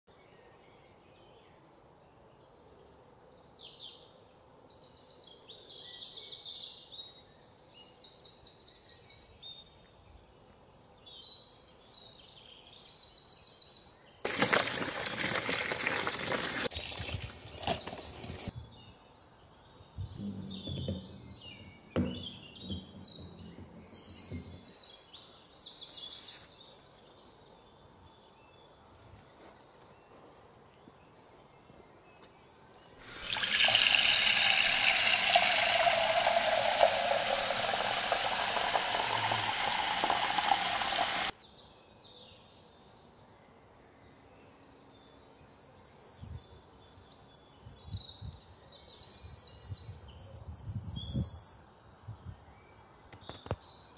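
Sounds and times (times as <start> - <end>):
songbirds chirping: 0.1 - 53.9
hands moving wet mushrooms: 14.3 - 18.5
water pouring into plastic bowl: 14.3 - 18.5, 33.0 - 41.3.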